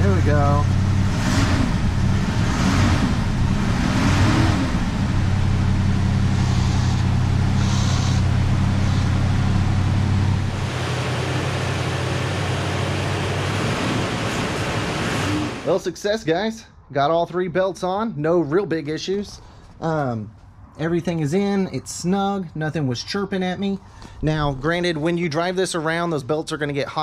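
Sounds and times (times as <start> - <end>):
car engine idling: 0.0 - 15.7.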